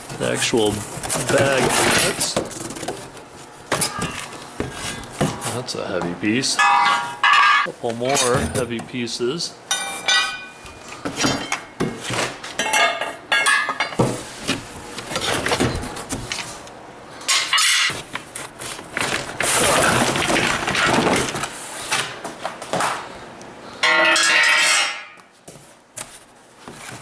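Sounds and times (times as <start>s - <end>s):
cardboard scraping and rustling: 0.2s - 3.5s, 17.9s - 21.7s
metal tubes clanking together: 6.6s - 8.4s.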